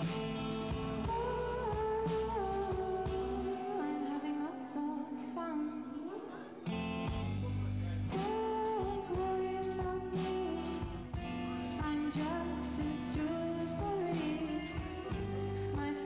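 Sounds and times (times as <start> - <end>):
rock band playing: 0.0 - 3.3, 6.7 - 16.0
woman singing: 0.0 - 6.8, 8.1 - 16.0.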